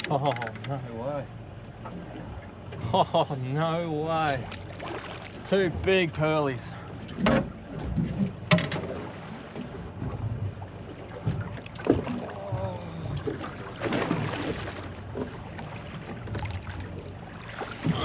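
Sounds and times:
water slapping boat hull: 0.0 - 18.0
knocks on boat: 7.1 - 16.9.

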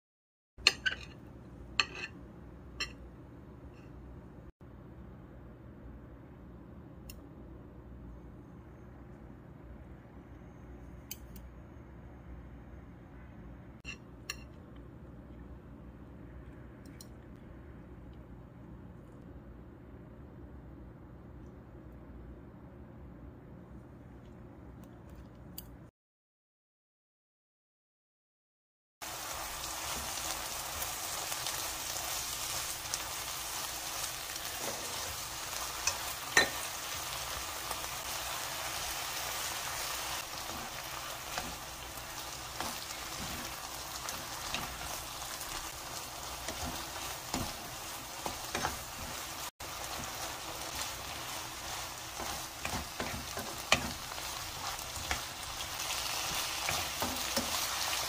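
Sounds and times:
meat and vegetables sizzling in wok: 29.0 - 58.0
wooden spatula scraping pan: 49.9 - 58.0.

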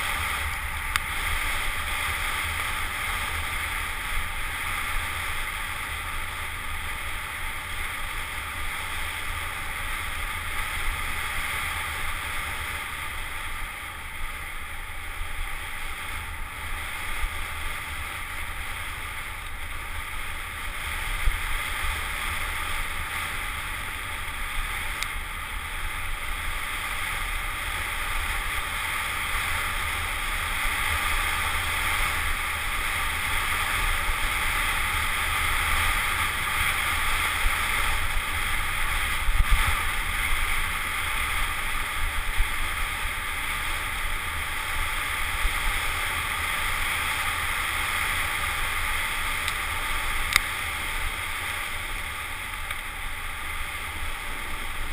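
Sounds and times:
wind on microphone: 14.4 - 54.9.

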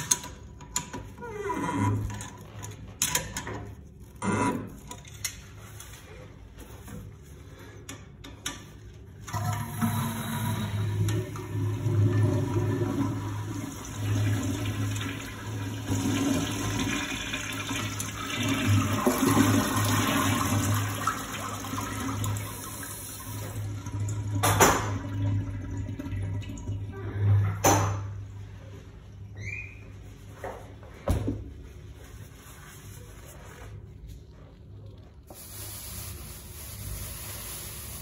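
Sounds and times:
toilet flushing: 9.1 - 28.9.

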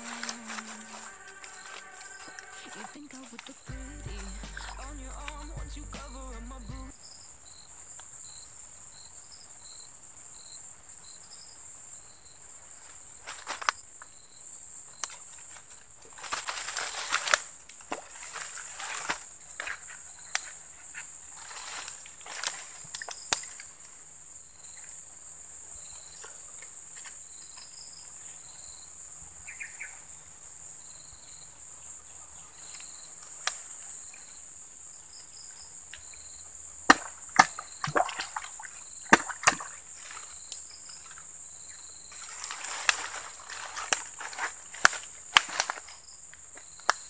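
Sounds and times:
leaves rustling: 0.0 - 6.7, 12.7 - 13.9, 15.1 - 24.0, 37.1 - 41.3, 42.0 - 46.8
high insect buzz: 0.0 - 8.4
insect chirps: 0.0 - 47.0
twigs snapping: 42.3 - 46.0.

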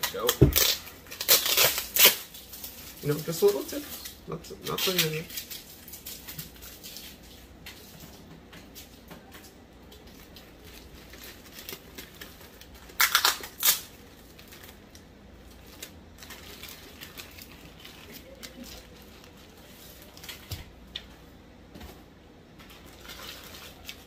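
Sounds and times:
tape and plastic ripping: 0.0 - 15.0
plastic wrapping crinkling: 0.0 - 21.2, 22.5 - 24.0.

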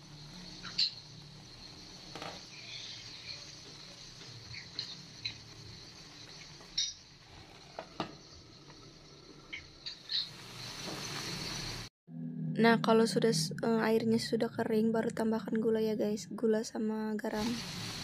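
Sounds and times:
fruit sputtering in a pan: 0.0 - 11.9, 17.4 - 18.0.

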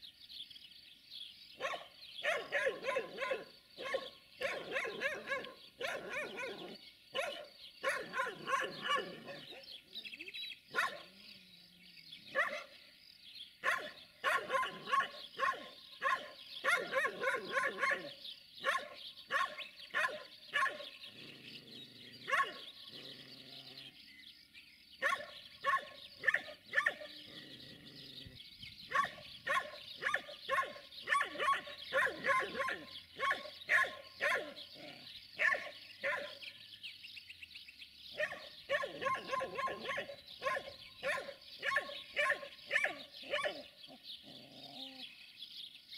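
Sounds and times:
dog barking: 1.6 - 9.6, 10.7 - 11.1, 12.3 - 12.8, 13.6 - 20.9, 22.3 - 22.7, 25.0 - 27.2, 28.9 - 36.4, 38.2 - 43.6.

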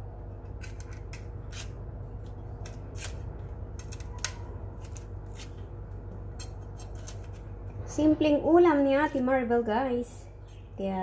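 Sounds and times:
garlic skin crackling: 0.4 - 7.9.

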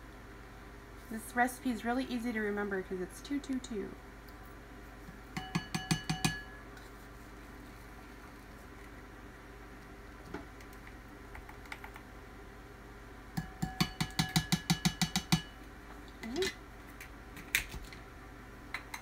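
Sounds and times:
spoon clinking on glass bowl: 5.4 - 6.6.

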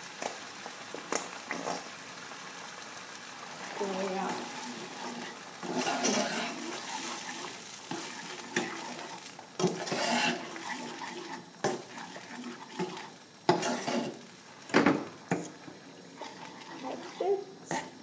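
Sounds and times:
low sizzle: 0.0 - 18.0
utensil scraping a steel pan: 4.8 - 9.0, 9.6 - 14.2.

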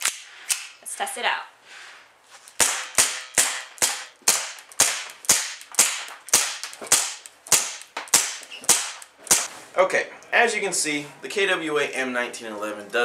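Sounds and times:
airsoft pistol shots: 2.6 - 9.5.

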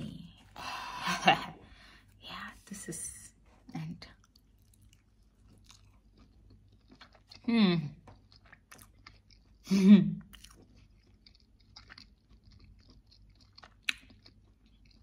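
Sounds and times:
person chewing: 4.1 - 15.0
soft mouth clicks: 13.9 - 14.1.

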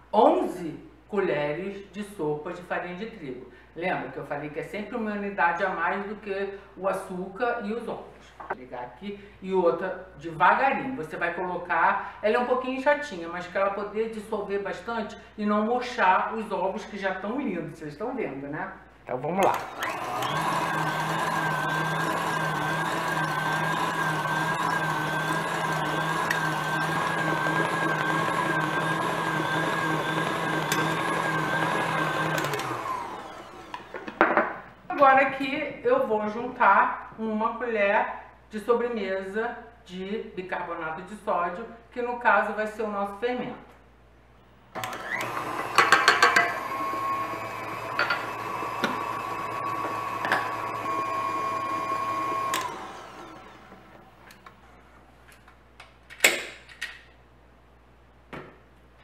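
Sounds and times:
stand mixer motor whine: 19.4 - 34.2, 44.8 - 54.2
mixer head clunk: 44.8 - 46.7, 47.8 - 50.8.

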